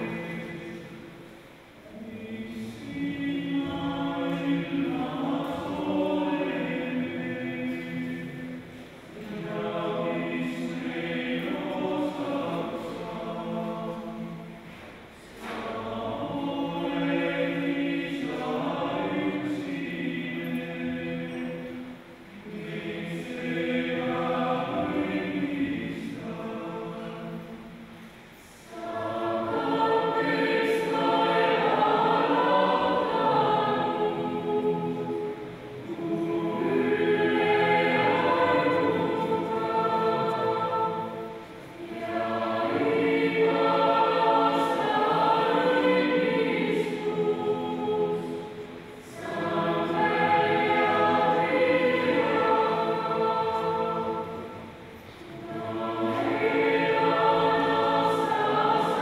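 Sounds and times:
youth choir singing: 0.0s - 59.0s.

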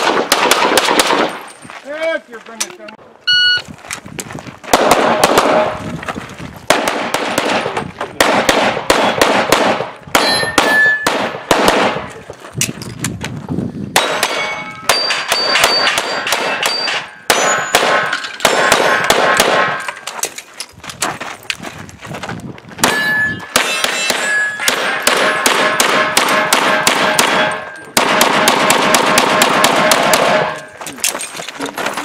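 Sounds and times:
pistol shots with metallic ring: 6.8s - 12.1s, 14.0s - 20.0s, 22.8s - 30.8s.

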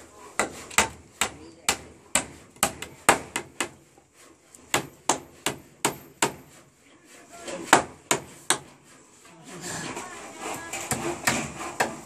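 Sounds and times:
hammer driving nails into wood: 10.8s - 12.0s.

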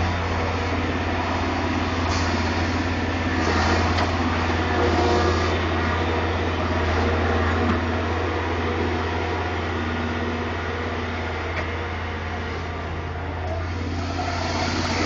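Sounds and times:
excavator diesel engine droning: 0.0s - 15.0s
hydraulic hissing surges: 1.3s - 5.6s, 13.6s - 15.0s.

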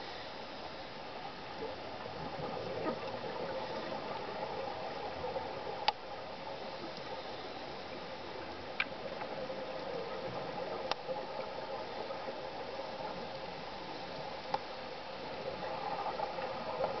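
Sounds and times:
muffled underwater hiss: 0.0s - 17.0s
faint sharp clicks: 5.8s - 6.1s, 6.8s - 7.2s, 8.6s - 11.2s, 13.3s - 14.8s.

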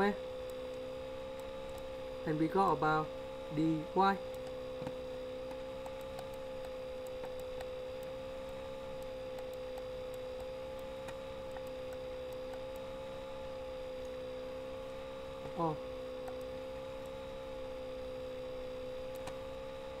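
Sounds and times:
steady electrical hum: 0.0s - 20.0s
faint ticks: 4.3s - 12.9s.

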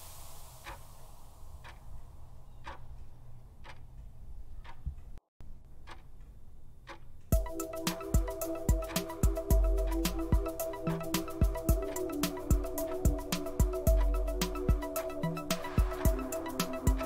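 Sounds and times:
countdown timer ticking: 7.3s - 17.0s
music: 7.3s - 17.0s.

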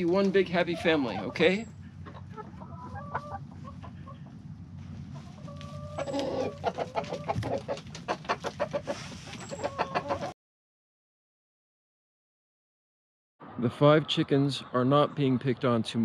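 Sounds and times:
chickens clucking: 0.0s - 10.4s
steady low rumble: 1.3s - 6.0s.

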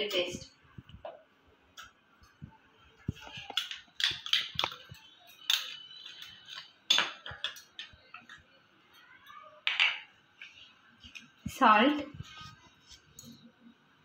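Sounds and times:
metal spoon scraping and tapping: 3.3s - 8.4s.

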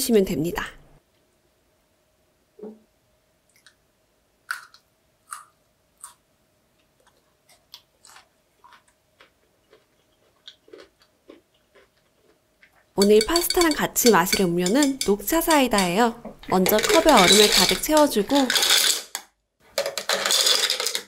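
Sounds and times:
person chewing crunchy food: 4.5s - 6.2s, 6.8s - 13.0s.

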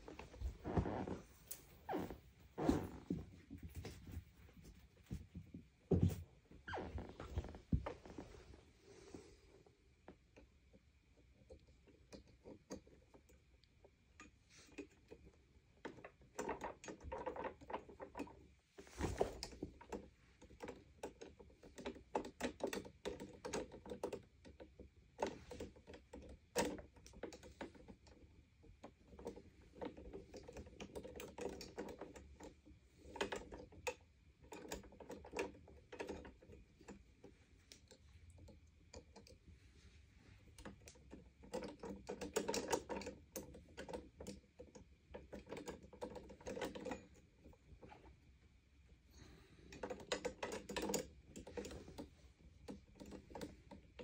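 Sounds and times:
vacuum cord and fittings clicking: 11.4s - 39.6s, 40.4s - 48.2s, 49.1s - 54.0s.

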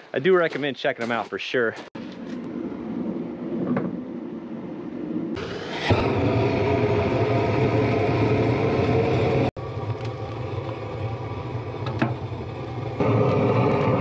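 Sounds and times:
gas torch burning: 5.4s - 14.0s.

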